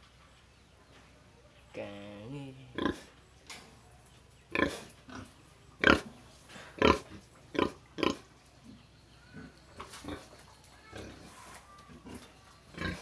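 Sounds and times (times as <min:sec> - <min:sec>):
pig grunting: 0:06.8 - 0:08.3, 0:12.0 - 0:13.0.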